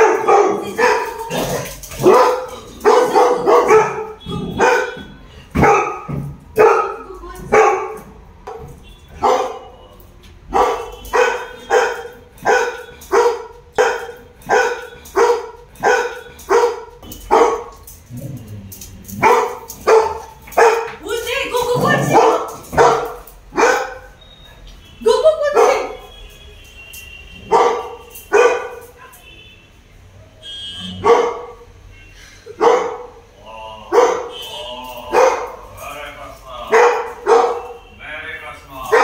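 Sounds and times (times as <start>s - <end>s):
dogs barking: 0.0s - 9.8s, 10.4s - 17.9s, 19.1s - 24.2s, 25.2s - 26.1s, 27.4s - 29.0s, 30.2s - 31.8s, 32.5s - 33.3s, 33.9s - 35.8s, 36.6s - 37.9s, 38.8s - 39.0s.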